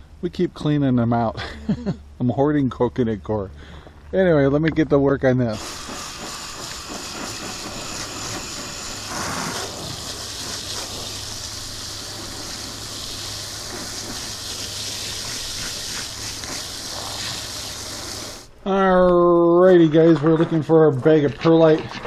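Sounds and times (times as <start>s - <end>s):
hose spray hissing: 5.5s - 18.5s.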